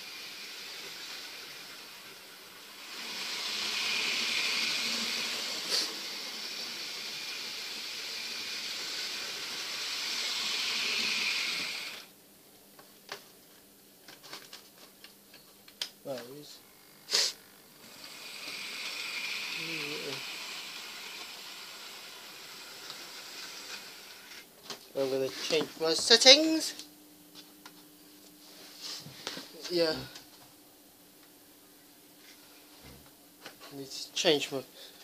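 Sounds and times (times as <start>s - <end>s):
model train whirring on track: 0.0s - 12.1s, 17.8s - 24.4s.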